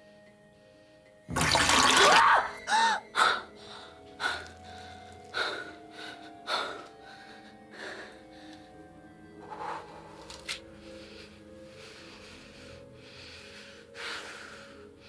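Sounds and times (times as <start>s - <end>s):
woman crying out: 1.9s - 3.1s
ragged gasping breaths: 9.4s - 15.0s.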